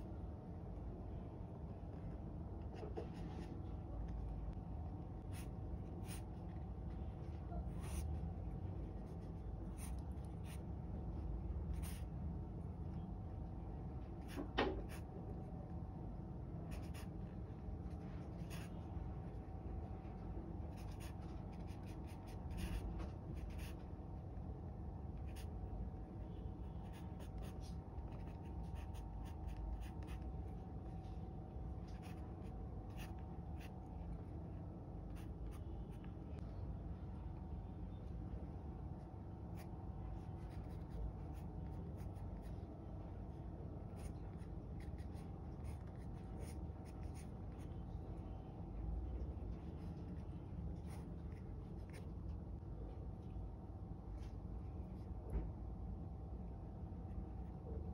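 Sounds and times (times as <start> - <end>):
pencil sketching on paper: 7.6 - 8.2, 26.6 - 30.3, 39.6 - 42.5, 43.9 - 47.8.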